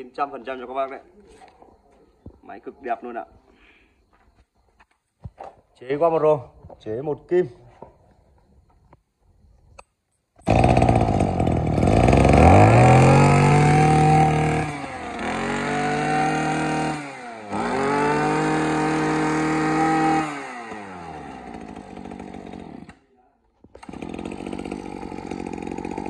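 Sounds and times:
brush cutter engine revving: 10.4s - 23.1s, 23.7s - 26.0s.

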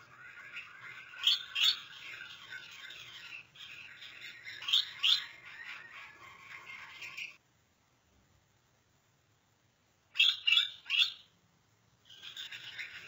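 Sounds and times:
finches chirping and twittering: 0.0s - 7.4s, 10.1s - 11.4s, 12.0s - 13.0s.

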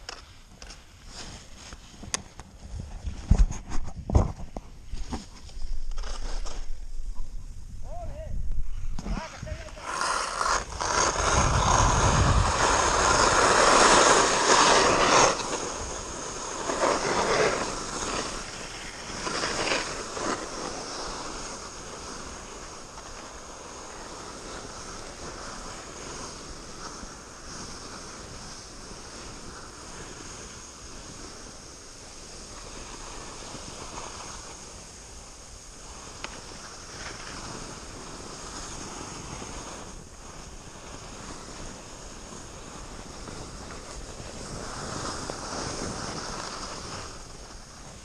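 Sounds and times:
wind buffeting microphone: 6.7s - 16.7s.

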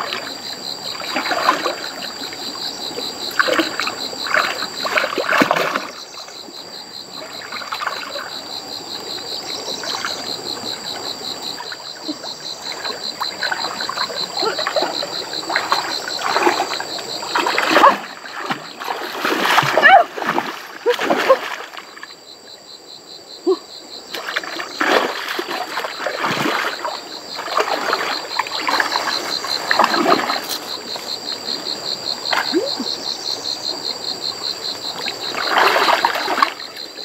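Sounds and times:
shallow water splashing: 0.9s - 2.3s, 3.2s - 6.3s, 12.7s - 22.0s, 24.2s - 30.8s, 35.1s - 36.9s.

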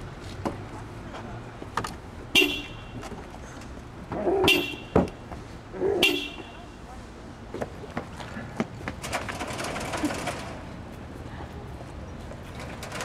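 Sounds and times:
car horn toots: 2.3s - 3.0s, 4.4s - 5.1s, 6.0s - 6.6s.

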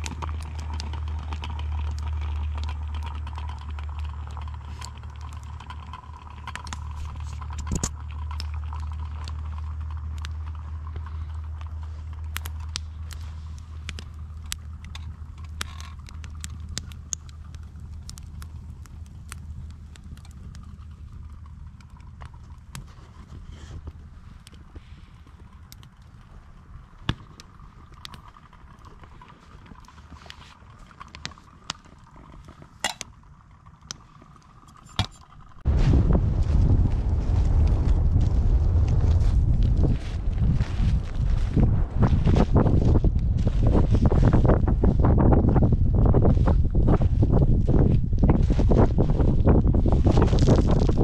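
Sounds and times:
campfire crackling and popping: 0.0s - 51.0s
low rumble: 35.4s - 51.0s.

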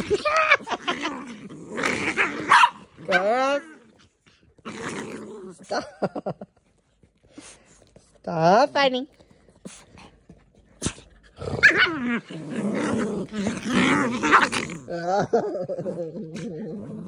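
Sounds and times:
dogs growling: 0.0s - 6.4s, 10.7s - 17.0s
dog yelp: 2.5s - 2.8s.

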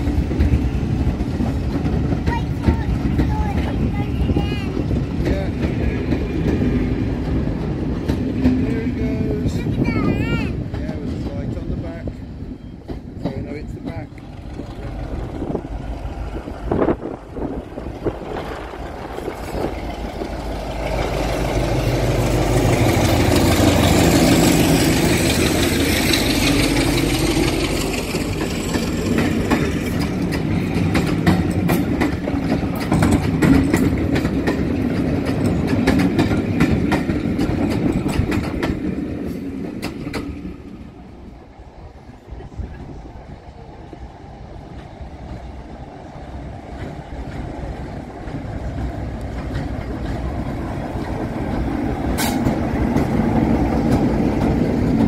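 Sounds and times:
train wheels clickety-clack: 0.0s - 41.0s, 43.8s - 55.0s
diesel locomotive engine: 0.0s - 55.0s.

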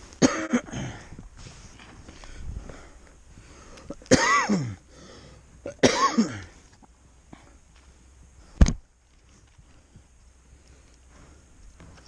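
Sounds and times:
man coughing: 0.2s - 0.9s, 4.1s - 4.8s, 5.7s - 6.5s.

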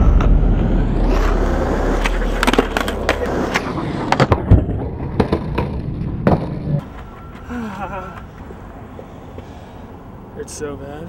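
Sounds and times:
skateboard wheels rolling on asphalt: 1.0s - 7.5s.

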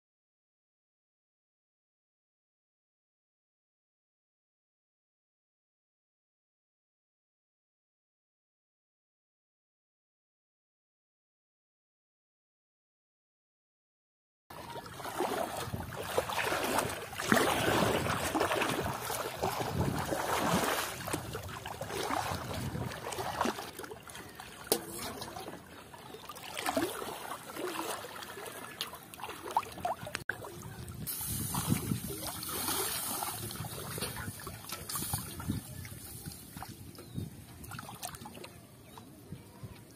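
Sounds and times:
water sloshing and splashing: 14.5s - 39.8s.

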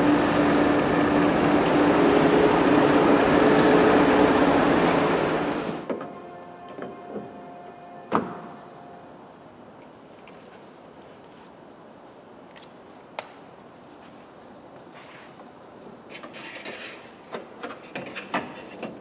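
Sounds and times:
faint steady tone: 6.0s - 9.4s.

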